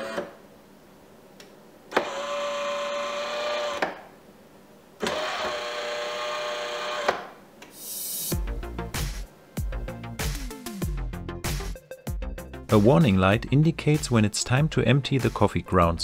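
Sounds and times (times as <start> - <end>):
coffee machine pump buzzing: 0.0 - 0.4, 1.9 - 3.9, 5.0 - 7.3.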